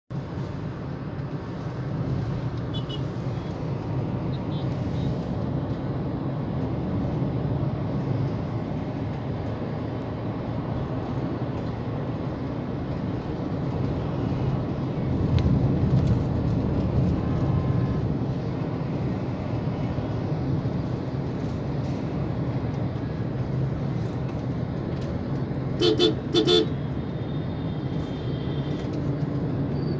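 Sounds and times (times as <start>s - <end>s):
car engine and tyre noise: 0.1s - 29.9s.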